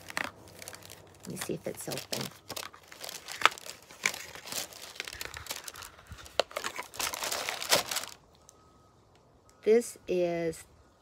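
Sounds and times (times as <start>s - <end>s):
tissue paper crinkling and rustling: 0.0s - 8.2s.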